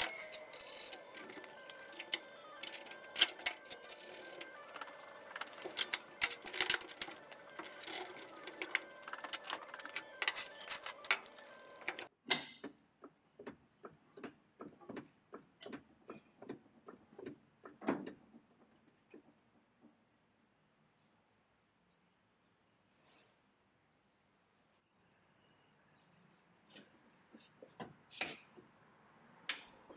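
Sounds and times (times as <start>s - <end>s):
trolley jack pumping clicks: 0.0s - 12.1s.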